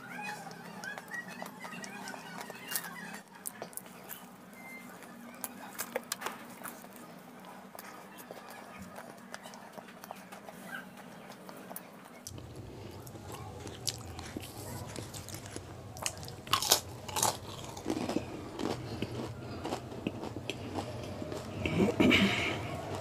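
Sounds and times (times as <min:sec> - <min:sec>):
crisp pastry crunching: 0:11.8 - 0:23.0.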